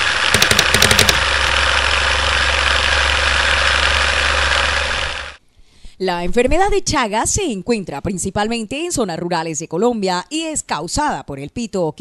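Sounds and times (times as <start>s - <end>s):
mechanical rumble: 0.0s - 5.4s
sharp clicks: 0.2s - 1.6s.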